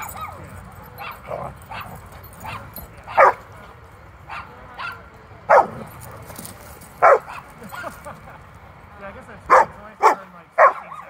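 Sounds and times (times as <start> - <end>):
dog play-barking: 0.0 - 3.5, 4.3 - 6.0, 7.0 - 7.6, 9.5 - 11.0.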